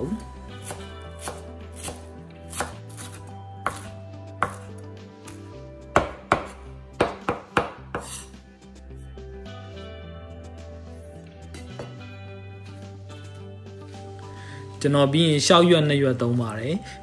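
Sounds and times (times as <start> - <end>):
knife chopping on wooden board: 0.6 - 4.7, 5.9 - 8.3, 11.6 - 12.0.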